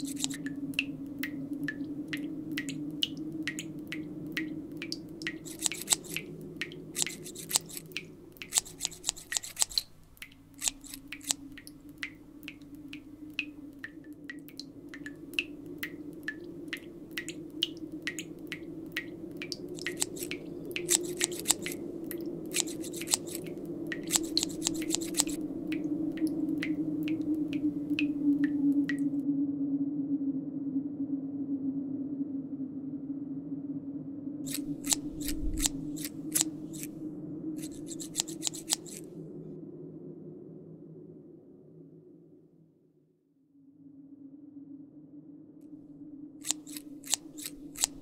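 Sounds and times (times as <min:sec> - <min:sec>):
scissors snipping hair: 0:00.0 - 0:00.5, 0:05.3 - 0:11.7, 0:19.5 - 0:21.8, 0:22.5 - 0:25.4, 0:34.5 - 0:36.9, 0:37.6 - 0:39.0, 0:46.4 - 0:48.0.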